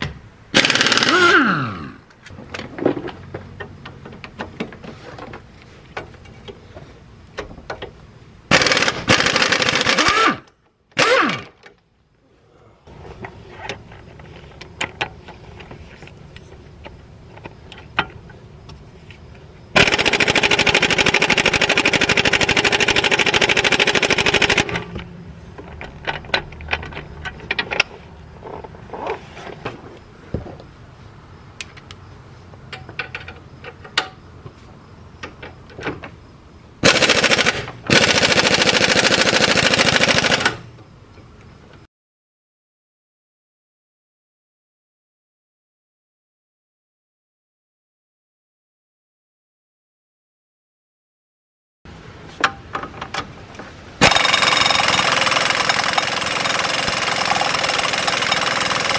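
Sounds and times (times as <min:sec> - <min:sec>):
pneumatic impact wrench hammering: 0:00.0 - 0:02.0, 0:08.5 - 0:11.7, 0:19.8 - 0:25.0, 0:36.8 - 0:40.6, 0:54.0 - 0:58.9.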